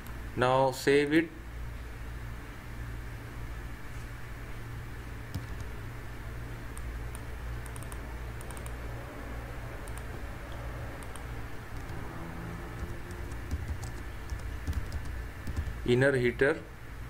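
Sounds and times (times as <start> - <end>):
steady low hum: 0.0 - 17.0
keyboard typing clicks: 5.3 - 5.8, 6.7 - 8.8, 9.8 - 10.1, 11.0 - 12.0, 12.8 - 15.8.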